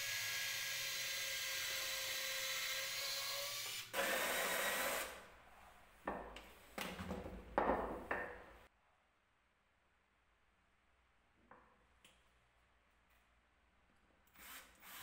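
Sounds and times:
cordless drill boring into wood: 0.0s - 5.2s, 14.4s - 15.0s.

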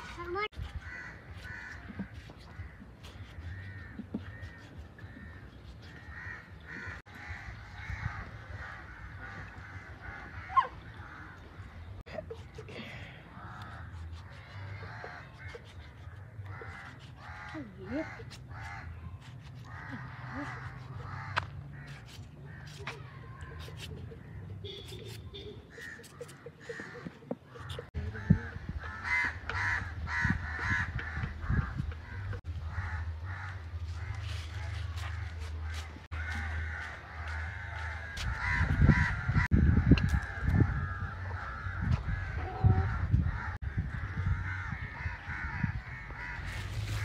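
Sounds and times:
birds cawing: 0.7s - 12.0s, 25.7s - 47.0s.

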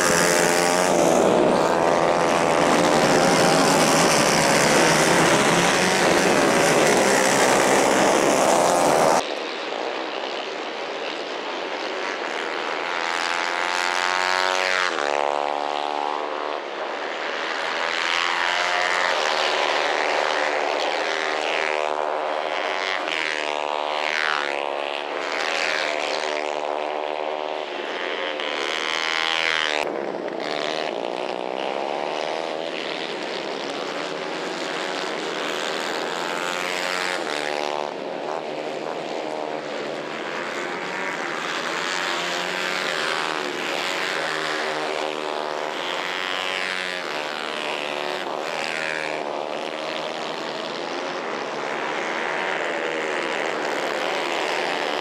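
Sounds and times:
racing kart engines revving: 0.0s - 55.0s.

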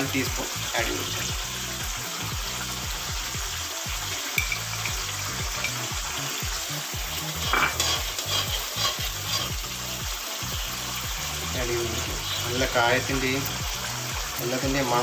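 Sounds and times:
gravy bubbling and sizzling in a wok: 0.0s - 15.0s
metal spatula scraping a pan: 7.3s - 9.8s.

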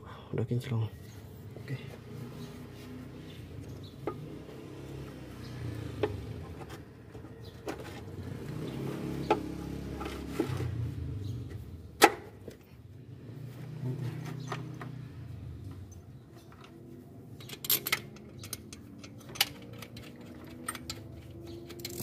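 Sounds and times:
metal and plastic parts clicking: 17.4s - 22.0s.

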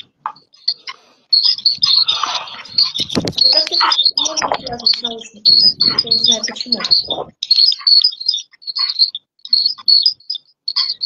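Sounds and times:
twittering chirps and whistles: 0.0s - 11.0s
muffled voice: 1.8s - 7.3s.

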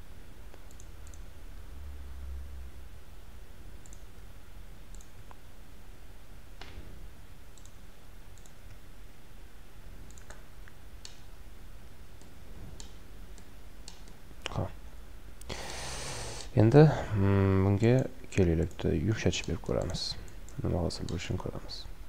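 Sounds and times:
low steady hum: 0.0s - 22.0s
computer mouse clicks: 0.5s - 1.3s, 3.8s - 4.1s, 4.9s - 5.4s, 7.6s - 7.8s, 8.4s - 8.8s, 10.1s - 11.3s, 12.2s - 14.6s, 18.6s - 21.3s.

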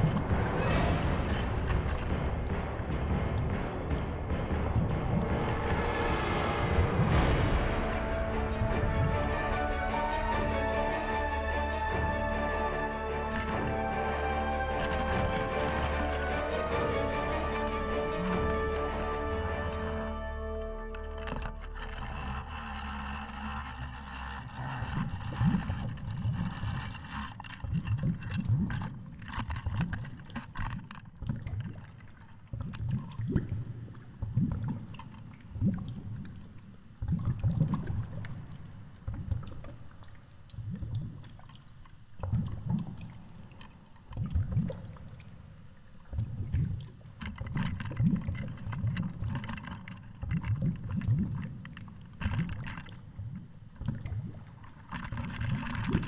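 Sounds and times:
muffled underwater rushing surges: 0.0s - 9.8s.

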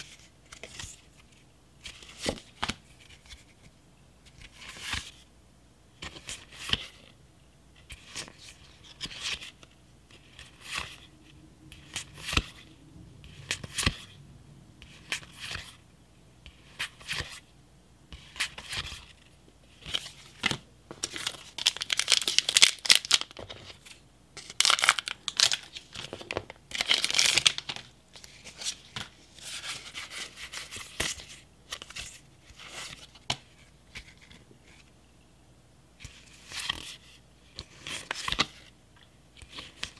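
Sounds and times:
cards rustling: 7.8s - 11.1s, 11.7s - 12.7s.

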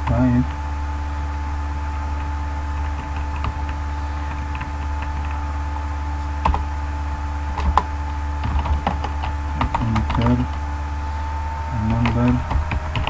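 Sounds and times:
low electrical hum: 0.0s - 13.0s
computer keyboard keystrokes: 7.5s - 10.6s, 12.3s - 13.0s.

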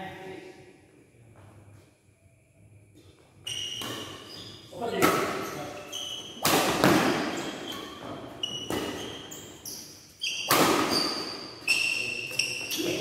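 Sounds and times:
shoes squeaking on court floor: 3.0s - 13.0s
racket striking shuttlecock: 6.4s - 7.4s, 10.4s - 11.3s.

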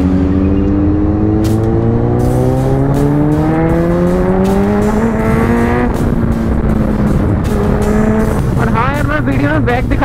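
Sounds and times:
motorcycle engine accelerating: 0.0s - 10.0s
wind rumbling on microphone: 3.8s - 10.0s.

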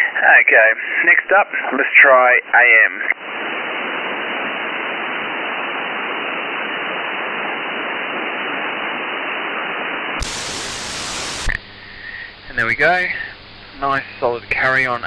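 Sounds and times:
radio receiver hiss: 0.0s - 15.0s.

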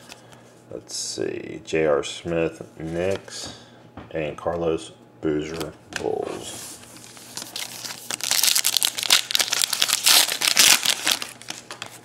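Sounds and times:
wrapper tearing and crinkling: 7.0s - 12.0s.

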